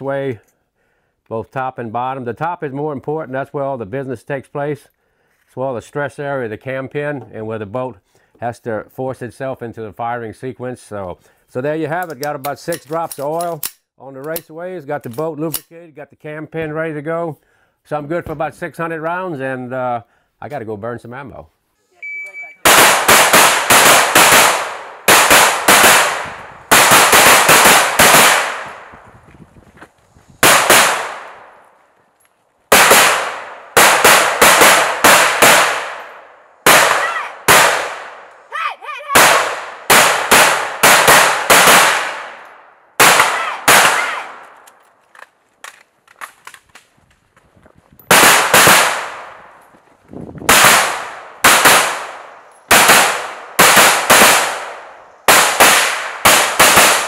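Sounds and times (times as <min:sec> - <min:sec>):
rifle shots with echo: 0:22.6 - 0:29.0, 0:30.4 - 0:31.6, 0:32.7 - 0:38.3, 0:39.2 - 0:44.5, 0:48.1 - 0:49.6, 0:50.5 - 0:57.0.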